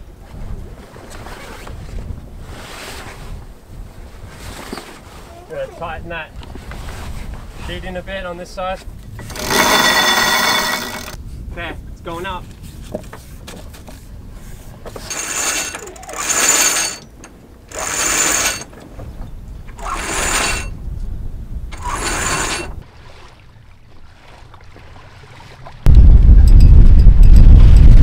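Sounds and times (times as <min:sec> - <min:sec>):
winch ratcheting: 0:09.2 - 0:11.2, 0:14.9 - 0:18.7, 0:19.8 - 0:20.8, 0:21.7 - 0:22.8
wind buffeting microphone: 0:17.0 - 0:22.9, 0:25.6 - 0:28.0.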